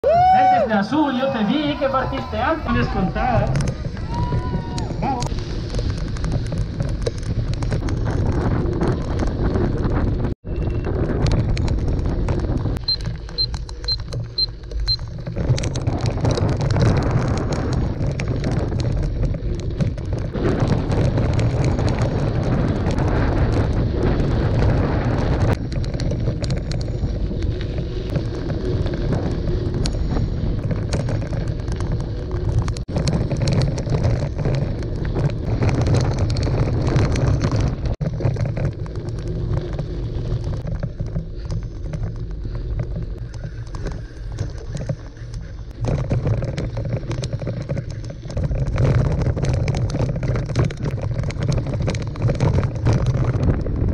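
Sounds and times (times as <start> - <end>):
bike clicks and rattles: 0.0 - 53.9
gravel crunching under tyres: 0.0 - 53.9
wind buffeting microphone: 0.0 - 53.9.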